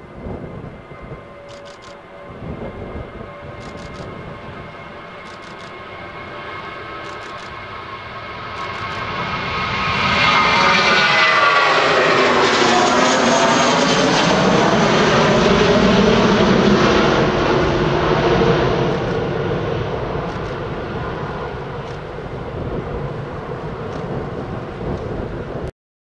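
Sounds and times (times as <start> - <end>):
jet engines at takeoff thrust: 0.0 - 25.7.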